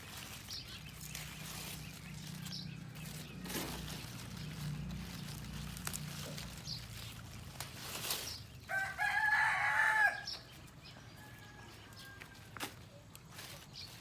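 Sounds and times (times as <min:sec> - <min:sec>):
lettuce leaves rustling: 0:00.0 - 0:14.0
rooster crowing: 0:08.7 - 0:10.4, 0:11.1 - 0:12.5.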